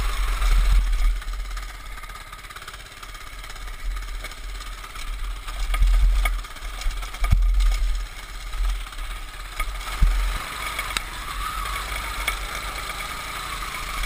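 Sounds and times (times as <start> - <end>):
bike jolting over bumps: 0.0 - 10.7
small bike engine running: 0.0 - 14.0.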